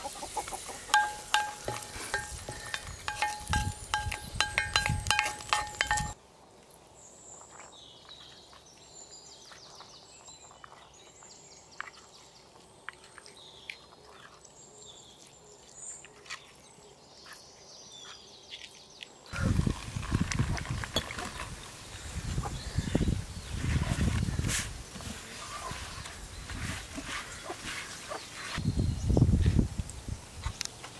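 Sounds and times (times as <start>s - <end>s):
hot oil sizzling: 0.3s - 6.2s
faint birds chirping: 6.8s - 19.5s, 21.5s - 29.4s.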